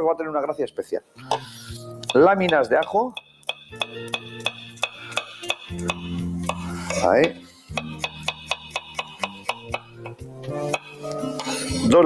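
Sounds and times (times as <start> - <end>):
knife tapping on wooden board: 2.0 - 10.9.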